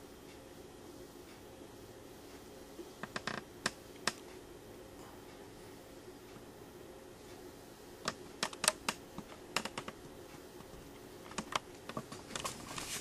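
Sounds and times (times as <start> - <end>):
faint steady hum: 0.0 - 13.0
sharp irregular clicks and taps: 3.0 - 4.4, 8.0 - 12.4.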